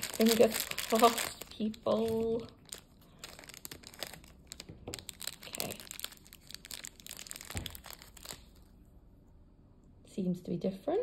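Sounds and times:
plastic pouch crinkling and tearing: 0.0s - 8.8s.

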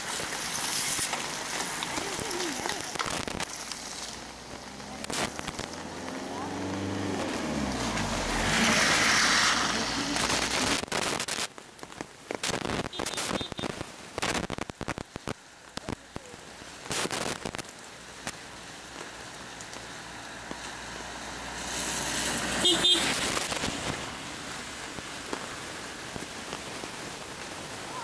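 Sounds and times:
raindrop taps: 0.0s - 8.2s, 17.3s - 20.8s, 24.8s - 27.6s
steady rain hiss: 0.0s - 28.0s.

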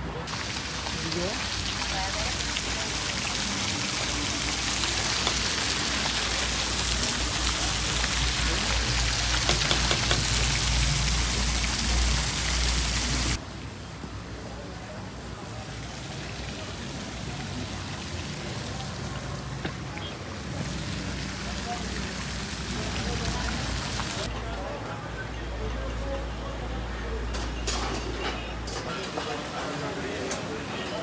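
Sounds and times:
fountain water splashing: 0.2s - 13.4s, 14.3s - 24.3s.

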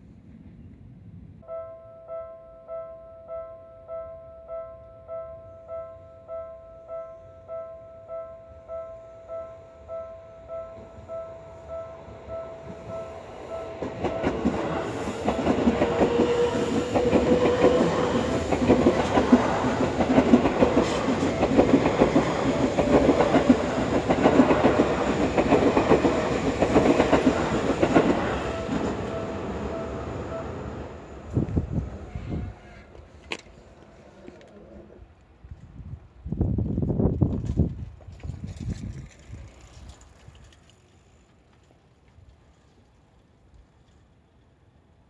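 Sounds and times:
electric train passing: 0.0s - 35.1s, 39.1s - 41.9s
level-crossing warning bell: 1.4s - 31.3s.

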